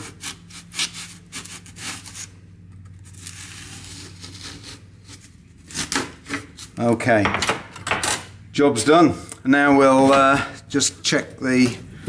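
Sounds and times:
saw rasping in foam: 0:00.0 - 0:02.4, 0:03.0 - 0:06.9.

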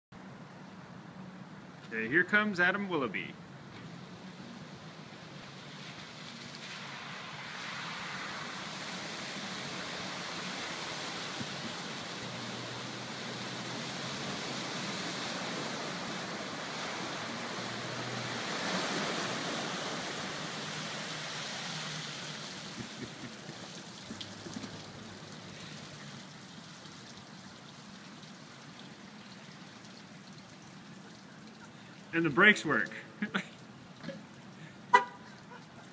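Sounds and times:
water rushing and sloshing: 0:03.9 - 0:35.9.

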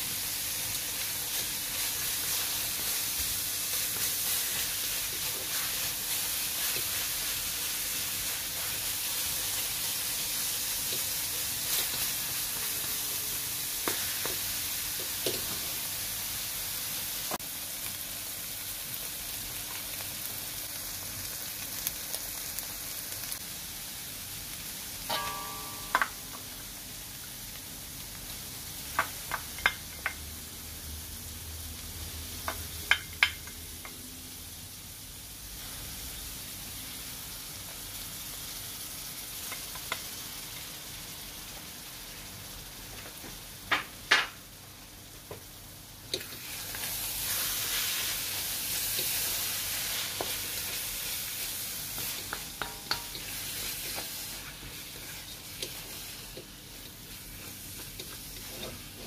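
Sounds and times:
meat sizzling in a wok: 0:00.0 - 0:59.0
utensil tapping a pan: 0:25.1 - 0:26.4, 0:52.0 - 0:53.3
spatula stirring: 0:46.1 - 0:59.0.

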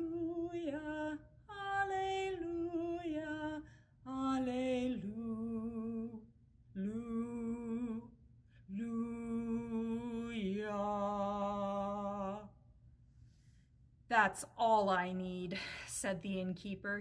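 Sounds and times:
woman singing unaccompanied: 0:00.0 - 0:06.2, 0:08.7 - 0:12.5.

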